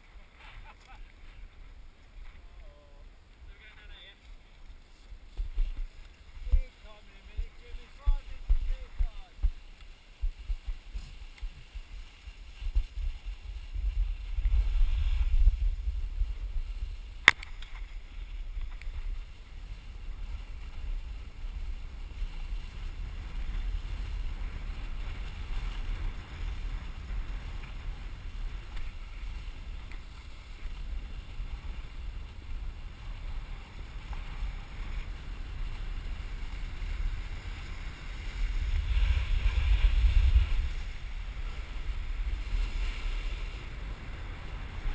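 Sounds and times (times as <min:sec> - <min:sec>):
snow sliding under skis: 0:00.0 - 0:44.9
wind buffeting microphone: 0:05.2 - 0:44.9
sharp click: 0:17.2 - 0:17.8.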